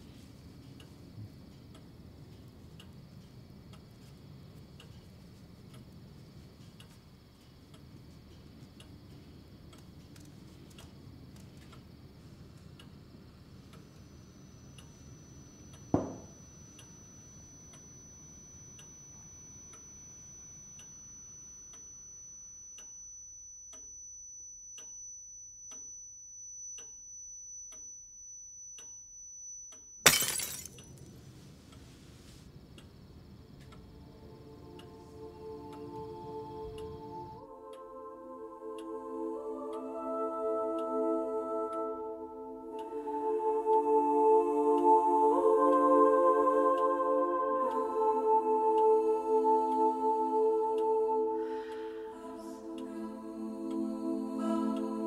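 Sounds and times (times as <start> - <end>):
low room noise: 0.0 - 55.0
pendulum clock ticking: 12.7 - 30.0, 32.6 - 39.9
high steady ringing tone: 13.2 - 31.4, 32.9 - 52.8
glass set down on wooden table: 16.0 - 16.3.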